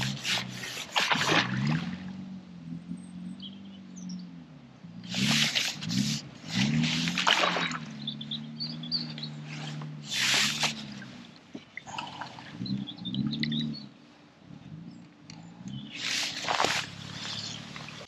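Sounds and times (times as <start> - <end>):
fish splashing at surface: 0.0 - 2.0, 5.1 - 7.9
low wavering hum: 0.0 - 18.0.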